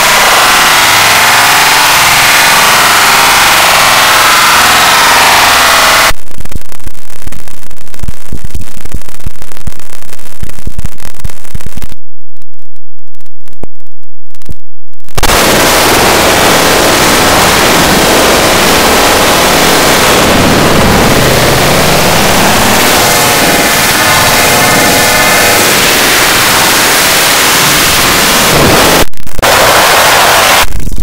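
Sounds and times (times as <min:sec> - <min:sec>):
harsh distorted noise: 0:00.0 - 0:31.0
crackle of dense pops and thumps: 0:06.1 - 0:16.1, 0:28.5 - 0:29.6, 0:30.6 - 0:31.0.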